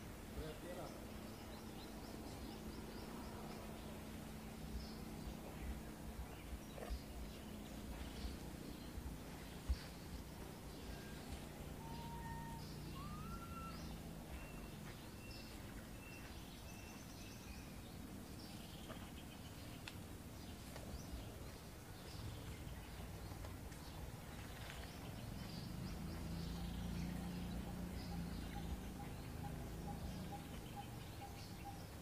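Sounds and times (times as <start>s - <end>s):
low steady rumble: 0.0s - 32.0s
high animal calls: 10.9s - 14.0s.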